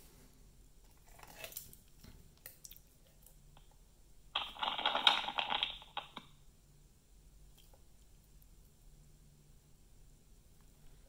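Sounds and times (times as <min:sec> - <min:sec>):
crackly noisy sound effect: 0:00.8 - 0:06.5
handling rustles and clicks: 0:04.4 - 0:06.3.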